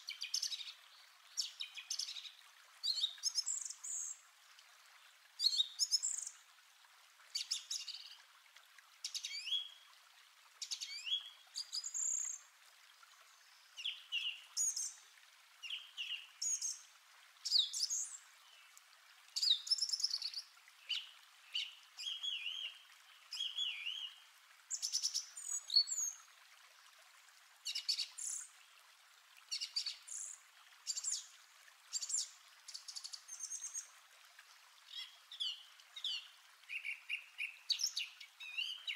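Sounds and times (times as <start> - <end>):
small birds chirping: 10.6 - 12.4, 19.4 - 26.2.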